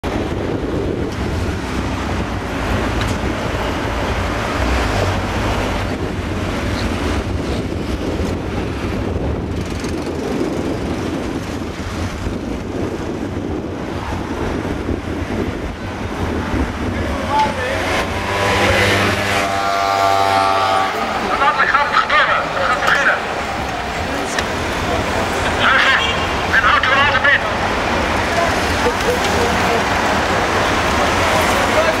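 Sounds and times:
low rumble of engines and road noise: 0.0s - 32.0s
vehicles driving: 0.0s - 32.0s.

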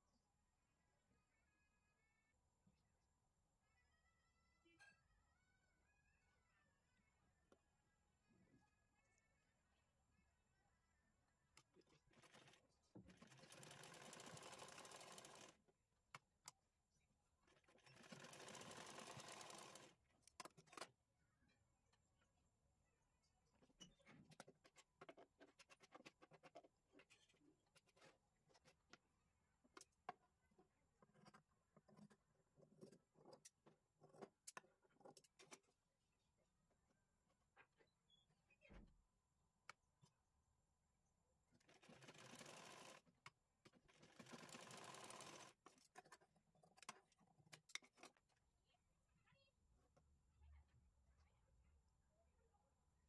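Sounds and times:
sewing machine stitching: 11.8s - 15.6s, 17.5s - 20.0s, 41.6s - 43.1s, 43.9s - 45.6s.

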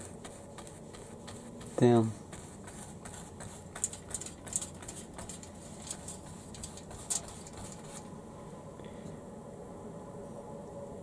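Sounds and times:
paintbrush dabbing and scrubbing: 0.0s - 8.1s.

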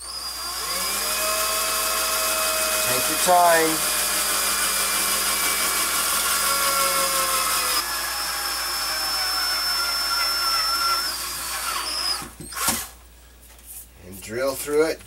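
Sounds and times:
cordless drill boring through metal: 0.0s - 12.9s.

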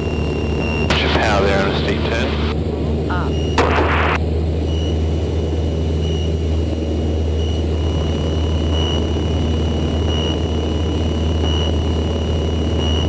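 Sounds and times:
aircraft engine and propeller droning: 0.0s - 13.0s.

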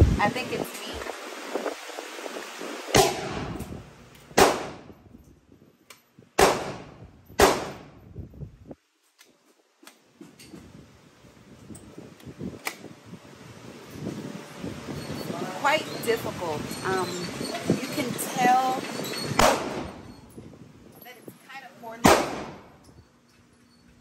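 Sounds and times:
gunshots ringing in a room: 2.9s - 3.7s, 4.3s - 5.0s, 6.4s - 8.0s, 19.4s - 20.0s, 22.0s - 22.8s.

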